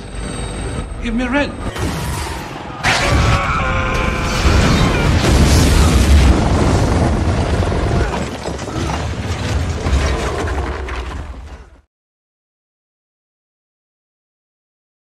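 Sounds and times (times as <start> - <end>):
crashing debris: 2.8 - 11.8
heavy explosion boom: 2.9 - 11.2
deep rumbling: 2.9 - 11.8.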